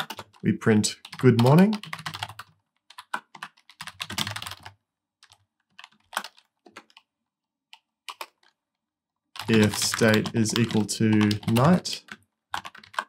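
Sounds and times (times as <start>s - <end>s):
typing on computer keyboard: 0.0s - 7.1s, 7.7s - 8.6s, 9.4s - 13.0s.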